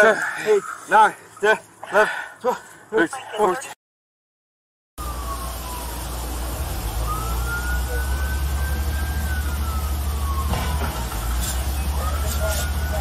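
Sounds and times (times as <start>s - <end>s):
siren wailing: 5.0s - 13.0s.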